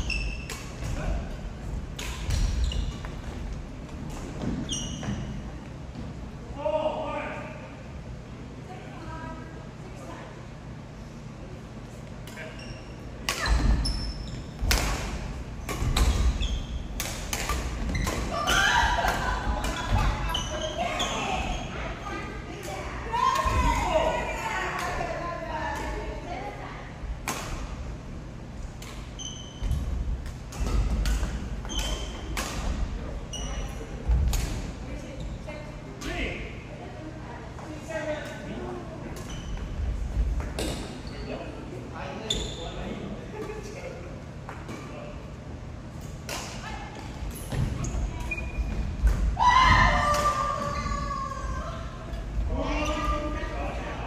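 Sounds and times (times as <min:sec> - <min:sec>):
sneakers squeaking on gym floor: 0:00.0 - 0:01.1, 0:02.1 - 0:06.1, 0:12.4 - 0:22.2, 0:28.9 - 0:34.3, 0:39.0 - 0:41.4, 0:42.2 - 0:43.0, 0:47.0 - 0:50.0
racket hitting shuttlecock: 0:14.6 - 0:16.4.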